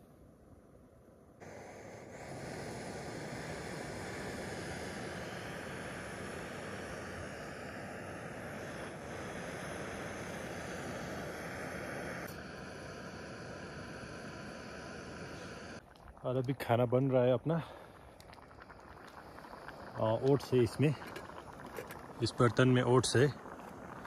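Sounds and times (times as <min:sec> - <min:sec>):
gas burner hissing: 0:01.4 - 0:24.0.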